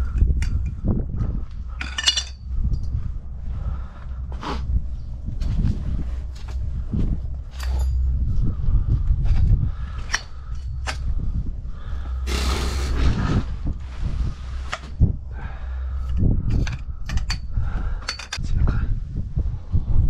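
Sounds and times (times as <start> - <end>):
low wind rumble on microphone: 0.0 - 20.0
light clicks and knocks of fittings: 16.0 - 18.4.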